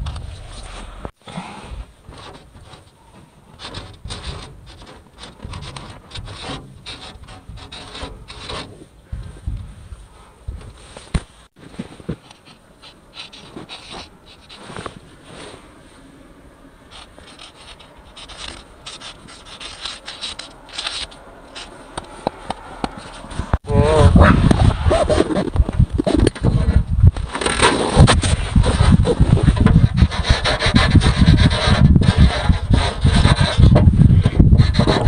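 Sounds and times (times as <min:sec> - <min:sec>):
marker scratching on rough wall: 0:02.1 - 0:08.9, 0:12.2 - 0:15.0, 0:16.9 - 0:23.6, 0:24.4 - 0:26.7, 0:27.9 - 0:35.0.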